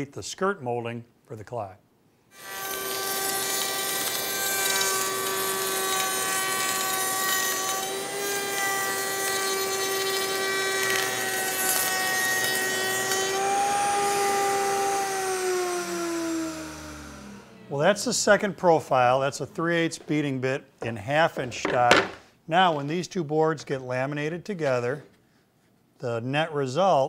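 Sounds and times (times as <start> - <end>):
hiss of wood cutting: 2.4 - 17.6
router motor whine: 2.4 - 17.7.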